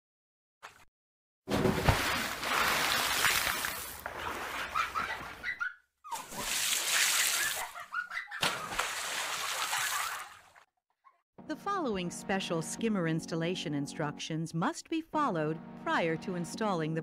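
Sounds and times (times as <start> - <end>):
water splashing and bubbling: 1.5 - 5.0, 8.6 - 10.7.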